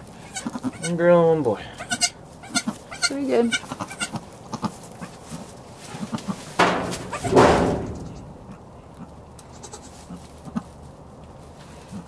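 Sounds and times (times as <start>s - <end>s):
goat bleating: 0.2s - 1.1s, 1.8s - 5.1s, 6.0s - 8.6s, 9.4s - 10.6s.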